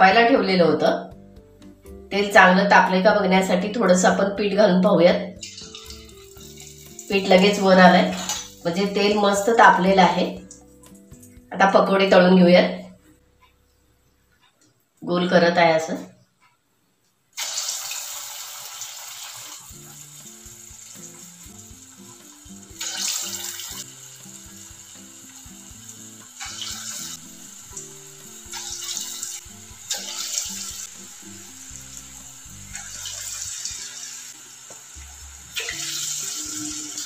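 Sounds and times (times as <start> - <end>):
soft background music: 0.0 - 17.0, 18.0 - 37.0
batter sizzling in hot oil: 5.4 - 11.4, 17.4 - 37.0.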